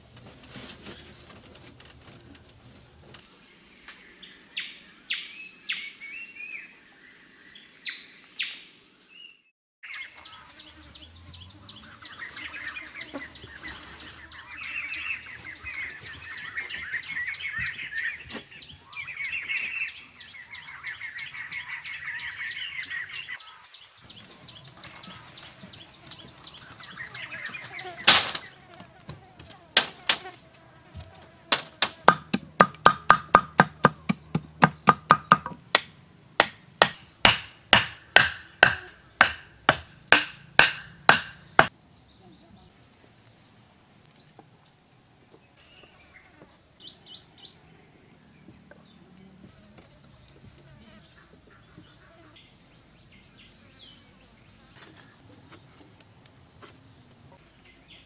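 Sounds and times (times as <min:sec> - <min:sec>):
insects droning: 0:00.0 - 0:09.2, 0:09.8 - 0:41.8, 0:42.6 - 0:44.1, 0:49.3 - 0:58.0
birds chirping: 0:00.0 - 0:35.6
digging tool chopping into ground: 0:28.0 - 0:28.6, 0:31.5 - 0:41.7.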